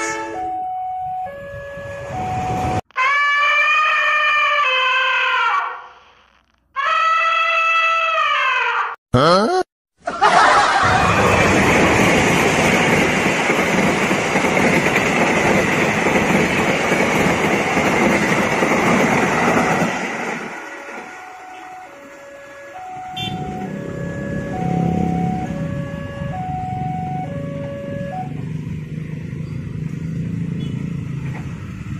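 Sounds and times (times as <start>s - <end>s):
train wheels rushing on rail: 10.8s - 22.2s.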